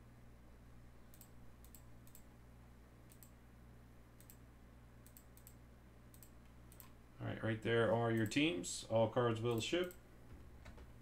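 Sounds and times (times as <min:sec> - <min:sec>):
steady low hum: 0:00.0 - 0:11.0
computer mouse clicks: 0:01.1 - 0:02.3, 0:03.0 - 0:03.4, 0:04.2 - 0:04.4, 0:05.0 - 0:07.0, 0:09.5 - 0:10.0.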